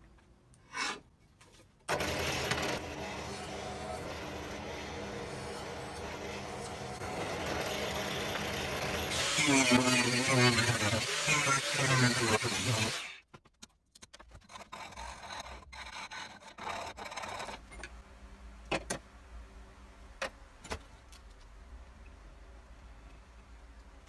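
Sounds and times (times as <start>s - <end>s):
metal tool scraping in saw cut: 0.7s - 1.0s, 1.9s - 13.2s.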